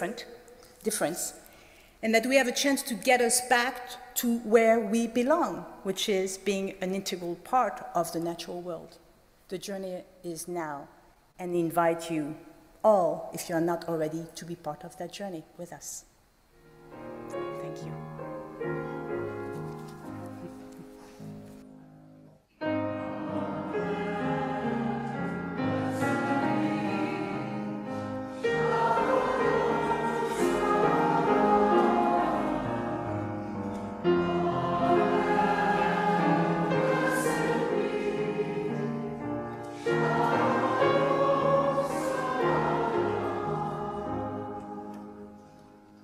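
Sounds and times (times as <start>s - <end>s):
choir singing: 22.6s - 45.8s.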